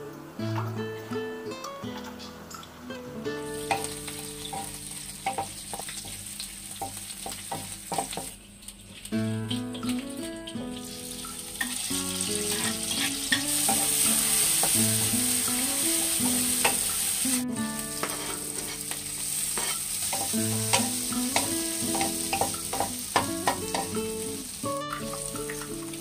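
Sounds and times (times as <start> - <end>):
background music: 0.0 - 4.8, 9.2 - 18.7, 20.2 - 26.0
food sizzling in oil: 1.6 - 26.0
spatula tapping on pan: 3.6 - 8.4, 13.3 - 15.3, 16.0 - 17.0, 19.6 - 24.2.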